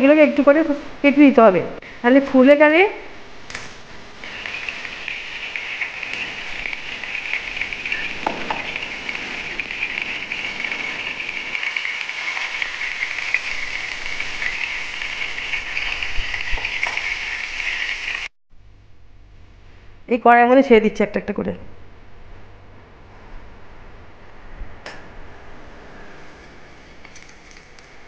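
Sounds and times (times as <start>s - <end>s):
hot oil sizzling and crackling: 3.4s - 18.4s.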